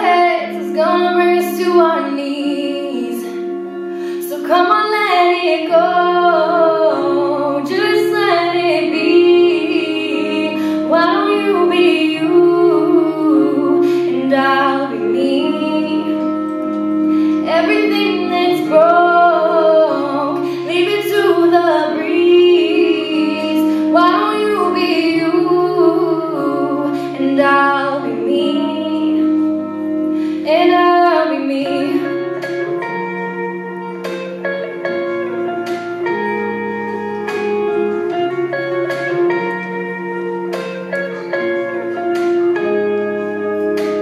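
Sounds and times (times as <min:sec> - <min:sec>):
woman singing pop ballad: 0:00.0 - 0:03.5, 0:04.1 - 0:16.7, 0:17.3 - 0:32.9
held accompaniment chords: 0:00.0 - 0:44.0.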